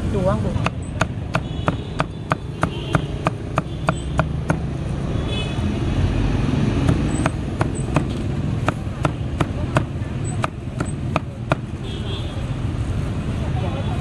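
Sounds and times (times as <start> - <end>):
low traffic rumble: 0.0 - 14.0
cleaver chopping on a block: 0.6 - 4.7, 6.8 - 11.7.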